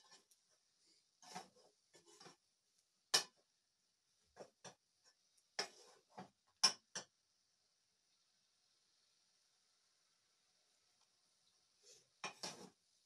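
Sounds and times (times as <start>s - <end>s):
metal ladle scraping cooking pot: 1.2s - 2.4s, 12.2s - 12.8s
faint high hiss: 7.0s - 13.0s.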